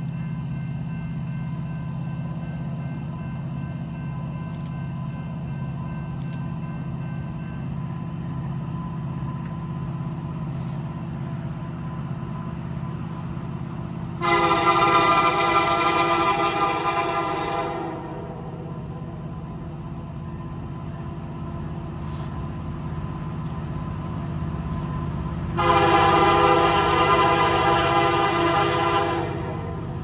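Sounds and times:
locomotive air horn: 0:14.2 - 0:18.6, 0:25.6 - 0:30.0.

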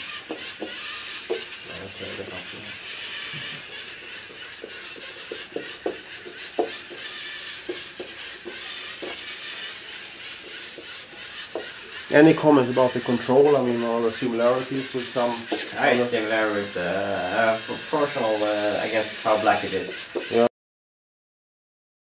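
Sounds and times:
robot motors whirring: 0:00.0 - 0:20.5.

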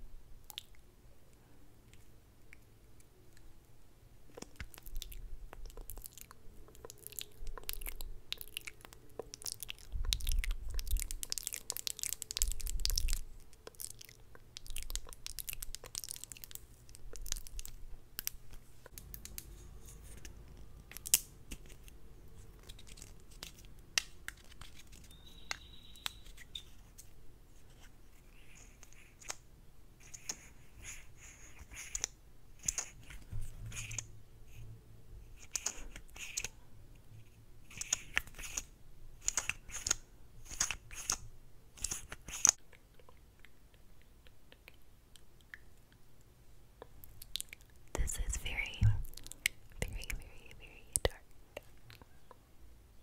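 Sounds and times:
wet lip smacks and clicks: 0:00.4 - 0:00.8, 0:04.3 - 0:19.3, 0:41.8 - 0:46.0, 0:46.8 - 0:48.3.

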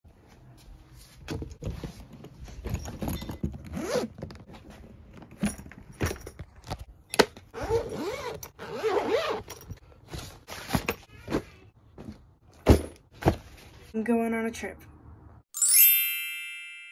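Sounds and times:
suitcase zippers pulled open: 0:03.6 - 0:04.3, 0:07.6 - 0:09.8.

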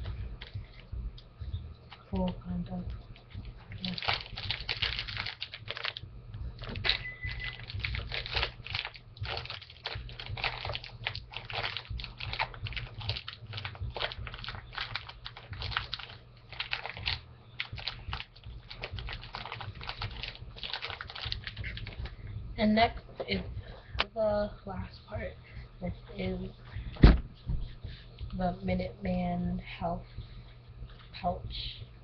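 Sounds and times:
steady low hum: 0:00.0 - 0:32.0
packaging crinkling: 0:03.1 - 0:06.0, 0:06.6 - 0:22.2.

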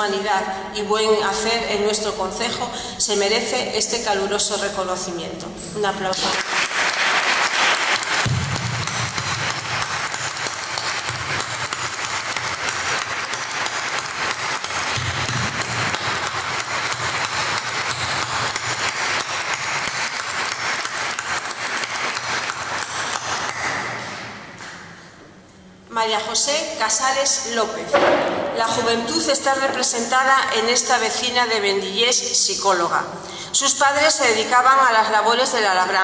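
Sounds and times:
audience applauding: 0:06.3 - 0:23.8.

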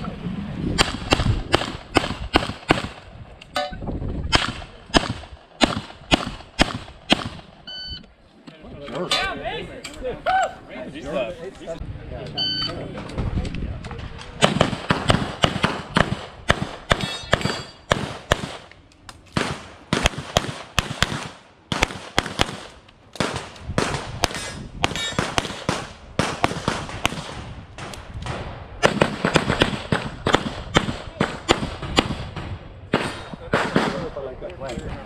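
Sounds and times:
pistol shots: 0:00.8 - 0:03.0, 0:04.3 - 0:07.5, 0:14.4 - 0:18.7, 0:19.3 - 0:27.9, 0:28.8 - 0:34.1.

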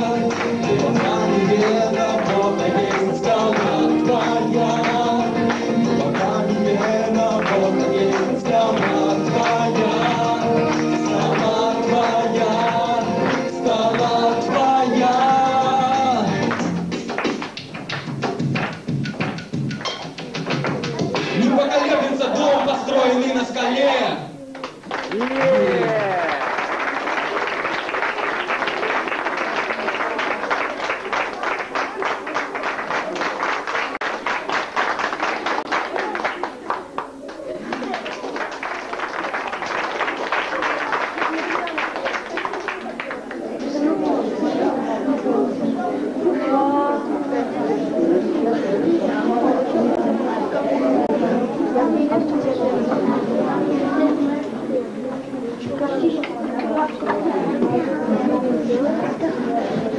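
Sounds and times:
person singing long notes: 0:00.0 - 0:16.6
steady rhythmic beat: 0:00.0 - 0:21.7
crowd noise: 0:00.0 - 0:59.9.

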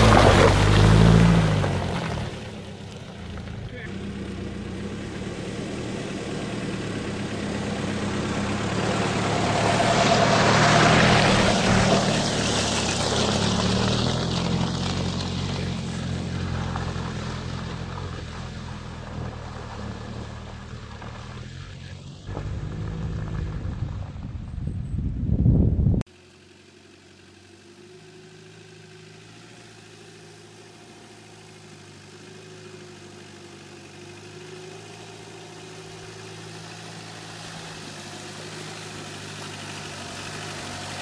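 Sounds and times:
tyres churning mud and water: 0:00.0 - 0:02.8, 0:05.4 - 0:21.3, 0:35.0 - 0:41.0
off-road vehicle engine: 0:00.0 - 0:41.0.

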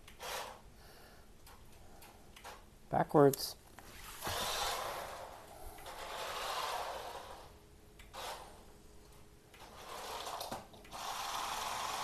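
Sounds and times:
tyres sliding on wooden floor: 0:03.9 - 0:07.5, 0:09.6 - 0:11.8
electric motor whirring: 0:04.2 - 0:07.5, 0:09.6 - 0:12.0.

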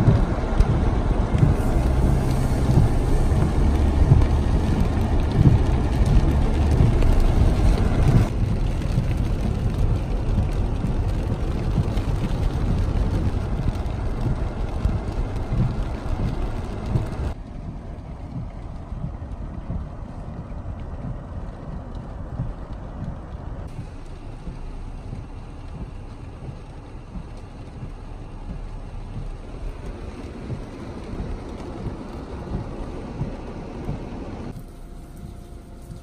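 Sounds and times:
low engine hum: 0:00.0 - 0:36.0
tyre hiss on wet road: 0:00.6 - 0:09.9, 0:33.6 - 0:36.0.

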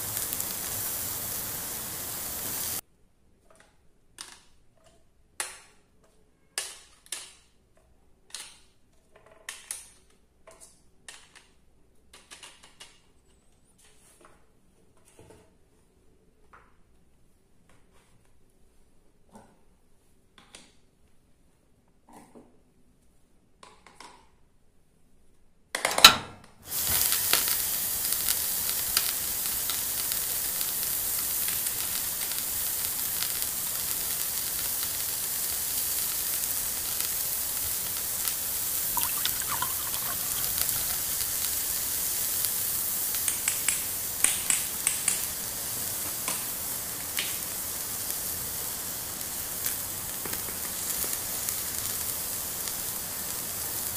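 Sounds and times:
frying sizzle: 0:00.0 - 0:02.8, 0:26.6 - 0:53.9.

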